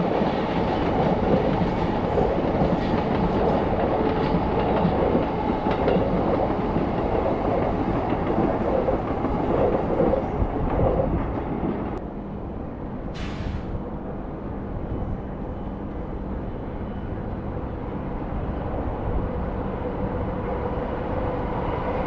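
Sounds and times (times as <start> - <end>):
train wheels clattering over rails: 0.0 - 11.9.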